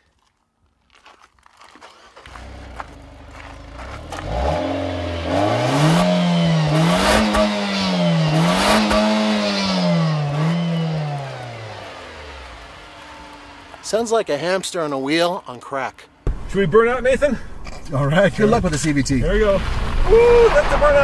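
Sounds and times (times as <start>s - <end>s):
car engine revving: 2.3s - 15.0s.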